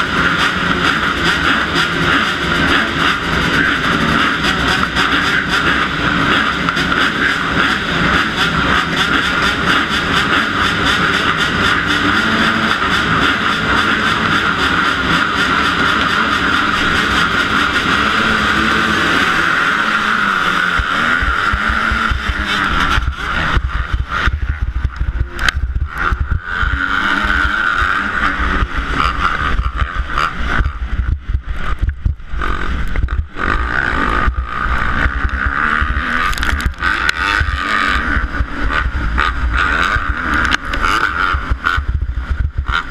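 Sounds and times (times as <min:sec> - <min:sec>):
dirt bike engine revving: 0:00.0 - 0:42.9
motocross bikes idling: 0:00.0 - 0:42.9.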